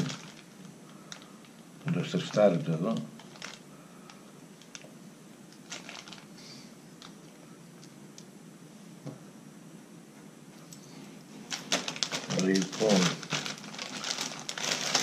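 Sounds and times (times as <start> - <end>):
plastic bag rustling: 0.0 - 4.9, 5.6 - 7.4, 10.8 - 15.0.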